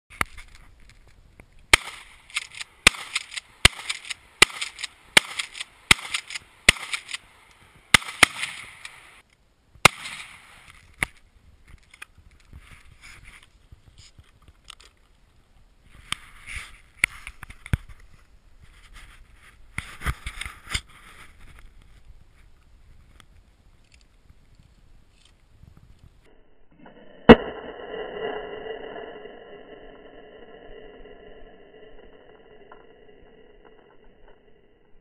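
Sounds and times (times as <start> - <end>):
gunshots with echo: 2.8 - 7.2, 7.9 - 8.8.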